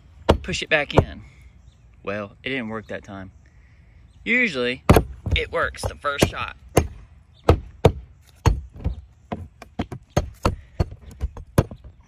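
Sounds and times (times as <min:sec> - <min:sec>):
pry bar knocking siding board: 0:04.9 - 0:12.0.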